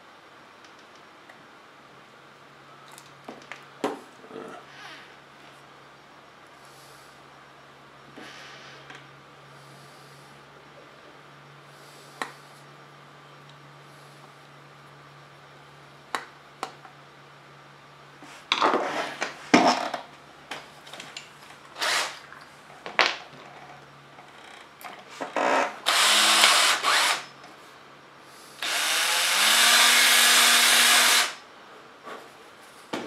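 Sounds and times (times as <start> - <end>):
electric power drill: 21.8 - 22.2, 25.4 - 27.3, 28.6 - 31.4.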